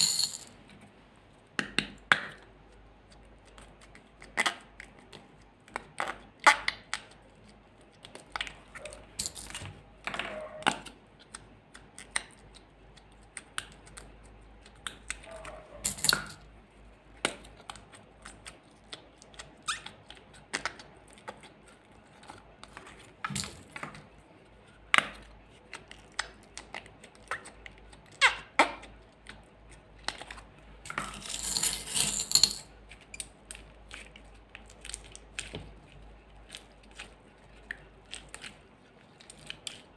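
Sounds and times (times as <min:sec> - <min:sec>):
slime squelching and squeaking: 0:16.5 - 0:30.9, 0:32.7 - 0:39.9
wet slime squish: 0:32.9 - 0:39.9.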